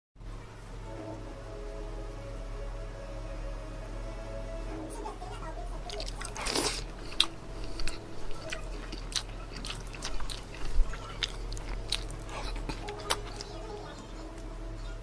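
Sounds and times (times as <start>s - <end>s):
crunchy chewing: 5.8s - 14.5s.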